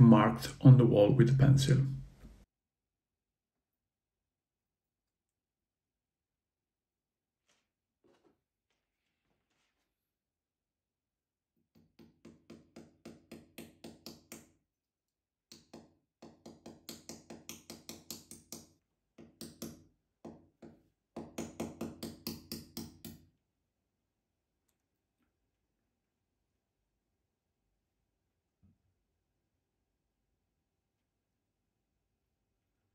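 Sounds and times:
hammer tapping a nail: 11.8s - 14.5s, 15.5s - 23.3s.

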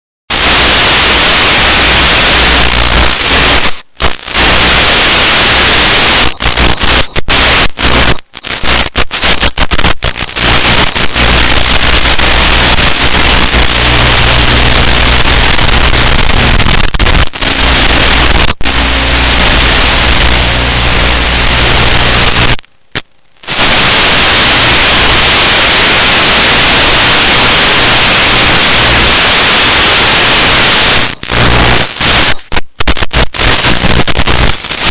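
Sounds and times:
static hiss: 0.3s - 34.9s.

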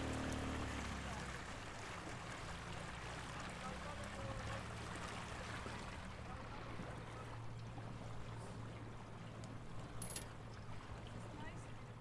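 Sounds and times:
water splashing against a hull: 0.0s - 12.0s.

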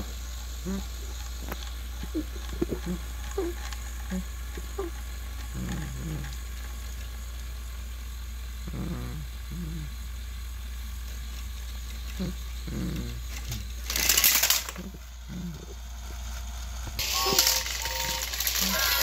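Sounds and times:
toy train motor hum: 0.0s - 19.0s.

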